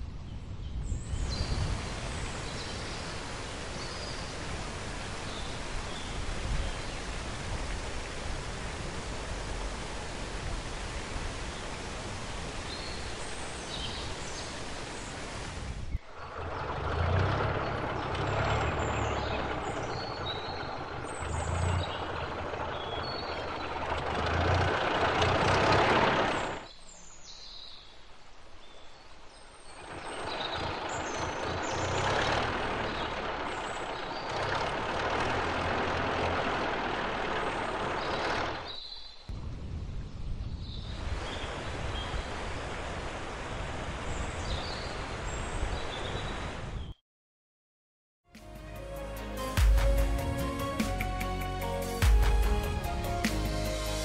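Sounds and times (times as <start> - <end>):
birds chirping: 0.6 - 7.2, 12.6 - 28.0
waterfall rushing: 1.7 - 15.6
car engine rumbling: 16.0 - 26.7, 29.9 - 38.7.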